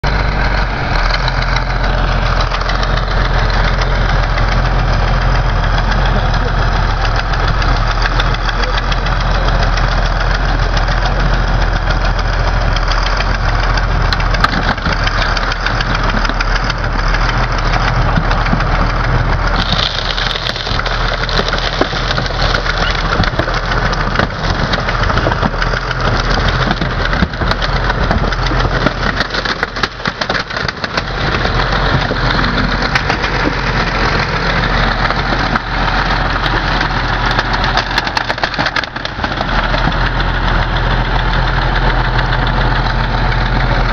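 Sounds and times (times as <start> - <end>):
tractor diesel engine running: 0.0 - 43.9
car body and glass crunching: 19.6 - 24.7.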